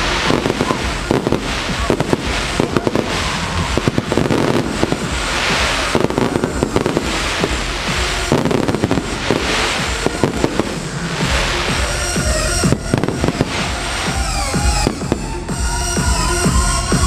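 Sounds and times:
firework crackle: 0.0 - 17.0
music playing: 0.0 - 17.0.

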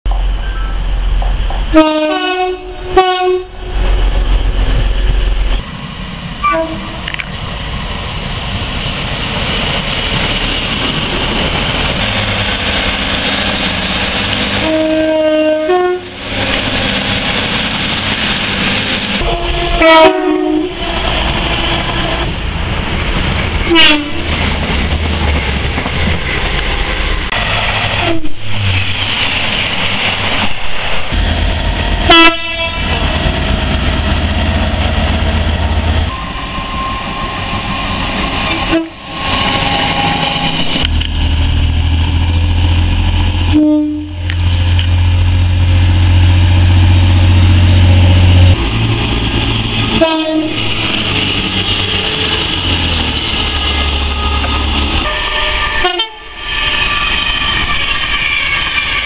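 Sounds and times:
rumble of trains running: 0.1 - 59.0
train horn blasts: 1.7 - 3.7, 6.4 - 7.1, 14.6 - 16.6, 19.2 - 22.3, 23.7 - 24.2, 32.1 - 33.0, 38.5 - 39.0, 43.5 - 44.3, 49.9 - 50.6, 55.0 - 59.0.

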